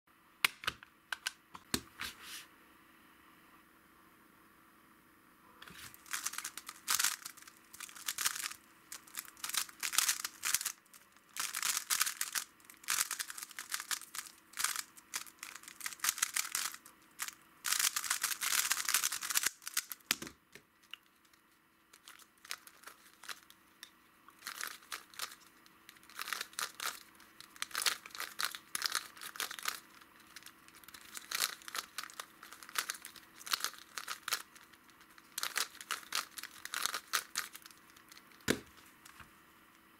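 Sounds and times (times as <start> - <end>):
puzzle cubes clicking: 6.0 - 21.0, 24.4 - 34.7, 35.3 - 38.7.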